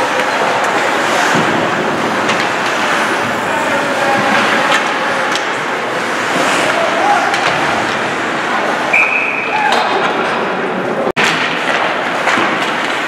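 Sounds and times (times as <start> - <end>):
crowd noise: 0.0 - 13.0
stick hitting puck: 4.2 - 5.6, 11.2 - 13.0.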